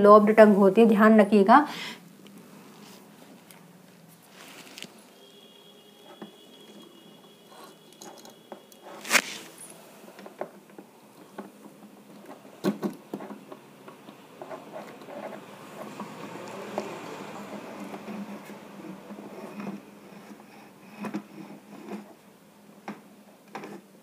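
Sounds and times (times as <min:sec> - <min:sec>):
faint steady high tone: 0:04.9 - 0:09.8.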